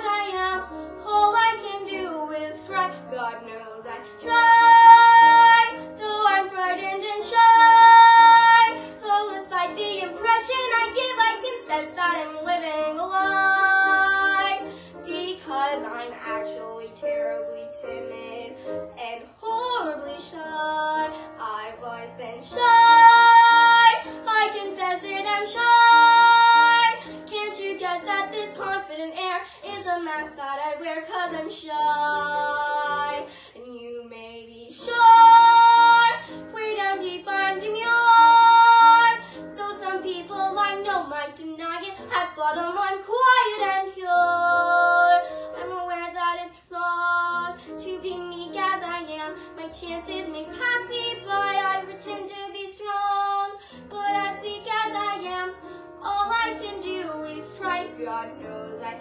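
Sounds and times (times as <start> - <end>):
girl singing: 0.0 - 59.0.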